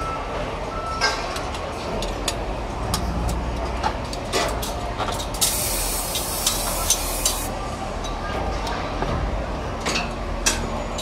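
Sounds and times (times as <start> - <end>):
aerosol spray can hissing: 5.4 - 7.5.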